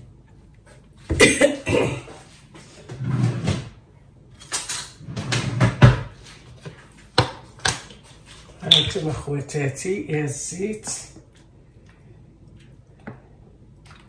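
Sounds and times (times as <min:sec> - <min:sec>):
kitchen cupboard opening: 0:04.4 - 0:07.9.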